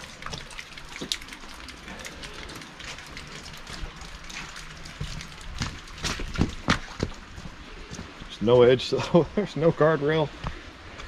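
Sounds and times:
water dripping: 0.0s - 8.1s
running water: 0.0s - 11.0s.

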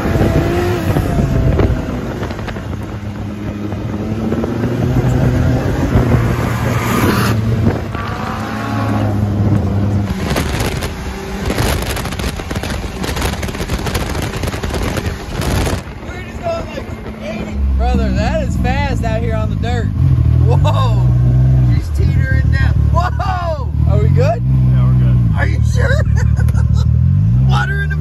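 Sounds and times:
engine under throttle: 0.0s - 16.0s
rough crackling noise: 9.5s - 17.2s.

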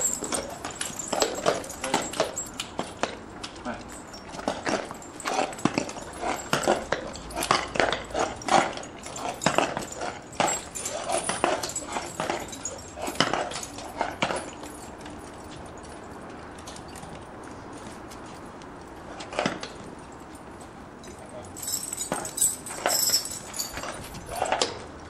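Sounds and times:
hooves shifting on brick: 0.0s - 20.1s
harness chains jingling: 0.0s - 25.0s.

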